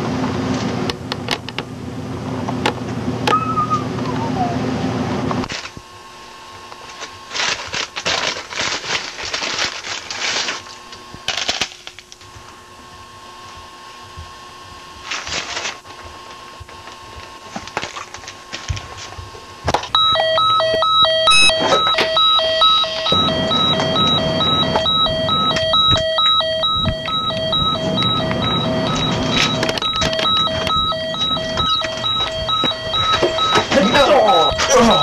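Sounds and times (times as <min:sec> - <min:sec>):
electronic beeping alarm: 0:03.3 - 0:04.5, 0:19.9 - 0:35.0
rustling and handling noise: 0:06.6 - 0:35.0.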